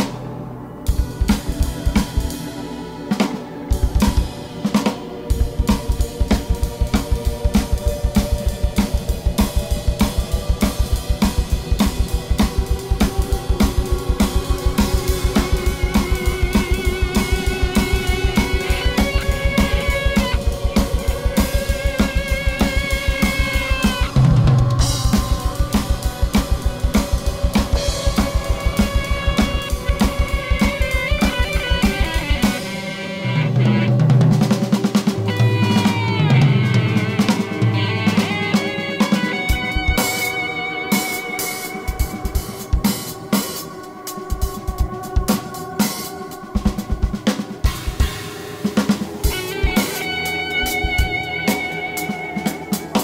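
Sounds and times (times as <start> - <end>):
sustained instrumental tones: 0.2 - 53.0
fast drum kit beat: 0.9 - 2.5, 3.2 - 53.0
snare and cymbal hits: 0.9 - 53.0.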